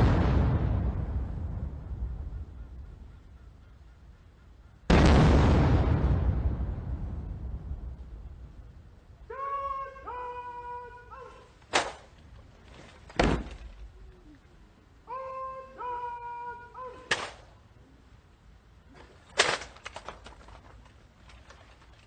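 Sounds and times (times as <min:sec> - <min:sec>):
cannon shots: 0:00.0 - 0:02.6, 0:04.9 - 0:07.7, 0:17.0 - 0:17.6.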